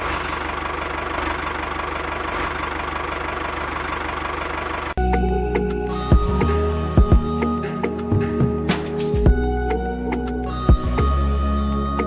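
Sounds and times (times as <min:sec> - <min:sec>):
tractor engine idling: 0:00.0 - 0:10.9
music: 0:05.0 - 0:12.0.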